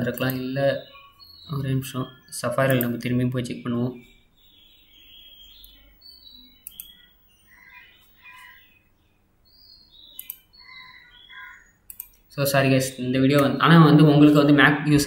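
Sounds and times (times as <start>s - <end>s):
sharp clicks: 0.0s - 0.5s, 2.6s - 3.1s, 6.6s - 7.0s, 10.1s - 10.5s, 11.9s - 12.3s
faint bird chirps: 0.0s - 15.0s.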